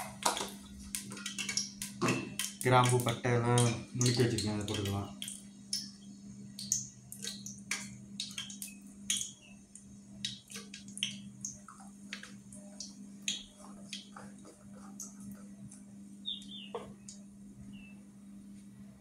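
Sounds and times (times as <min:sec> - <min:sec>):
spices crackling in hot oil: 0:00.0 - 0:17.3
steady low hum: 0:00.0 - 0:19.0.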